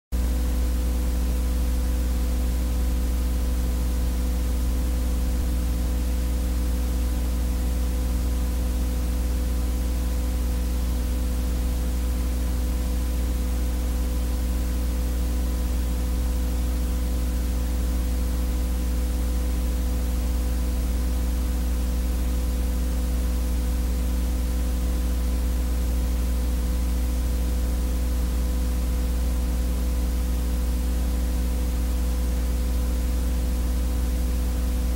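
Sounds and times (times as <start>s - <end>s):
low buzz with hiss: 0.2s - 34.9s
strong low hum: 2.6s - 12.9s.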